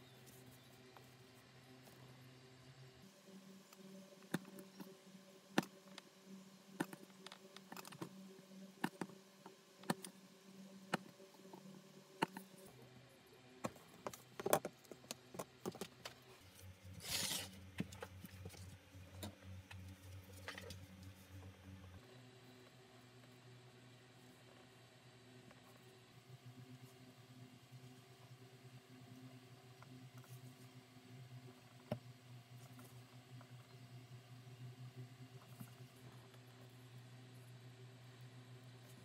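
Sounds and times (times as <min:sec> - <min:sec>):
knife cutting leather on a mat: 0:17.0 - 0:17.6.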